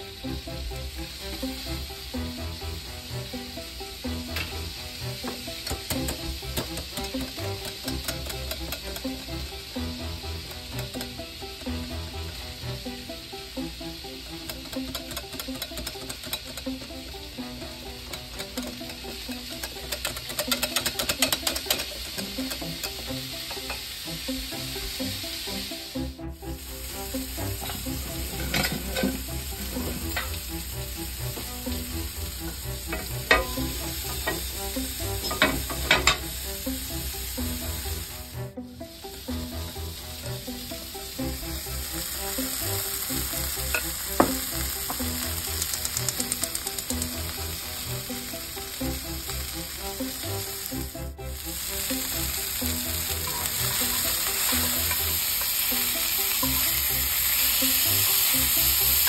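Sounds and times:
sausages sizzling in a skillet: 0:00.0 - 0:59.0
whisk stirring batter: 0:14.6 - 0:16.8, 0:18.1 - 0:22.6.

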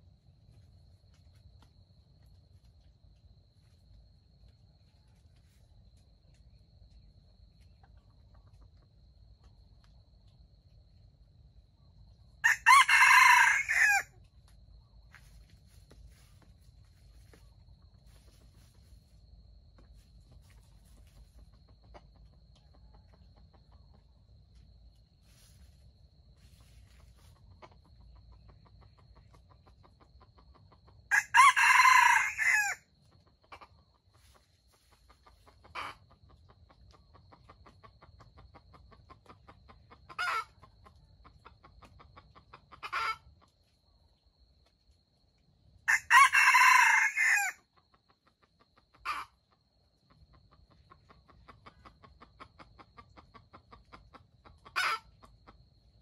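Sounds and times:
short rooster calls: 0:12.4 - 0:14.1, 0:31.1 - 0:32.8, 0:45.9 - 0:47.6
rooster crowing: 0:12.4 - 0:14.2, 0:31.1 - 0:32.8, 0:45.9 - 0:47.6.

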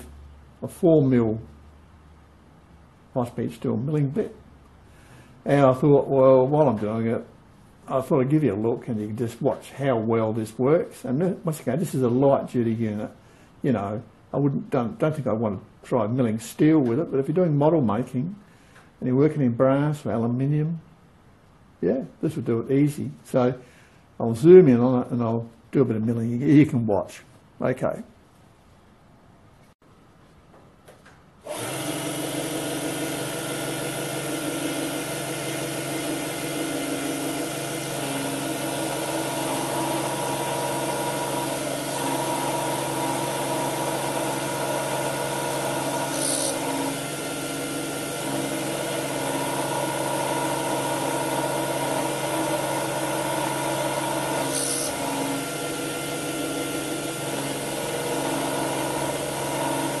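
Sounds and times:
end mill cutting brass: 0:31.5 - 1:00.0
motor spindle running: 0:31.5 - 1:00.0.

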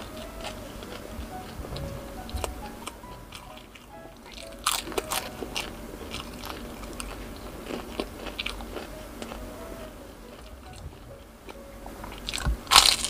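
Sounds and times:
crunchy bites and chewing: 0:04.6 - 0:09.4, 0:12.2 - 0:13.0.

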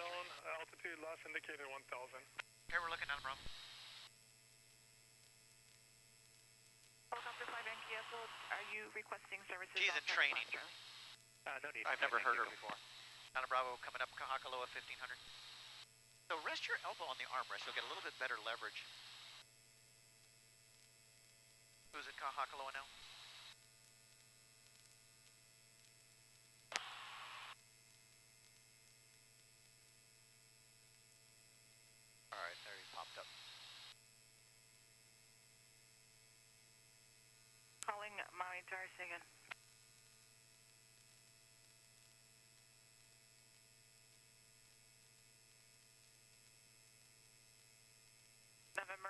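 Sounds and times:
faint radio hum: 0:00.0 - 0:04.0, 0:07.1 - 0:19.4, 0:22.0 - 0:23.5, 0:26.7 - 0:27.5, 0:32.3 - 0:33.9, 0:37.8 - 0:39.6, 0:48.7 - 0:49.0
radio static hiss: 0:00.0 - 0:04.1, 0:07.1 - 0:19.4, 0:22.0 - 0:23.6, 0:26.7 - 0:27.6, 0:32.3 - 0:34.0, 0:37.8 - 0:39.6, 0:48.8 - 0:49.0
faint electrical hum: 0:00.0 - 0:49.0
radio click: 0:09.5 - 0:11.0, 0:12.3 - 0:13.0, 0:26.7 - 0:27.5.

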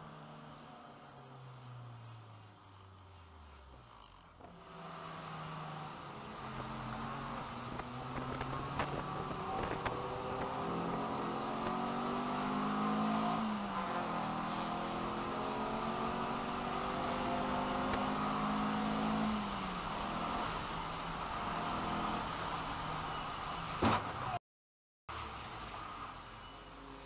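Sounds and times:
road noise on wet track: 0:00.0 - 0:24.4, 0:25.1 - 0:27.0
race car engine revving: 0:03.1 - 0:22.4.

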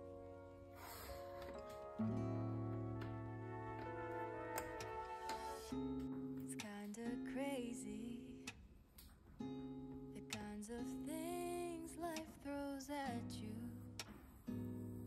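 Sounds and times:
acoustic guitar: 0:00.0 - 0:15.0
woman singing: 0:06.4 - 0:08.5, 0:10.1 - 0:14.0.

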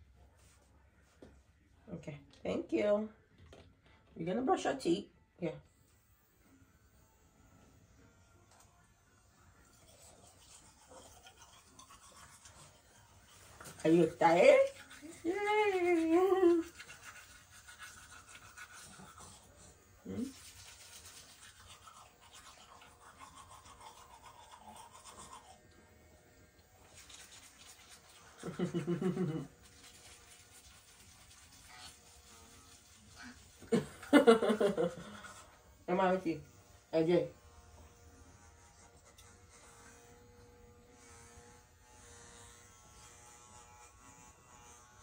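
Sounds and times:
toothbrush scrubbing teeth: 0:08.5 - 0:36.4, 0:37.7 - 0:41.4.

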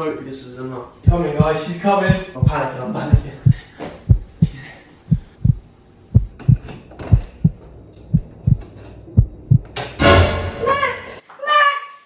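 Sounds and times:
heartbeat thuds: 0:01.0 - 0:09.8.

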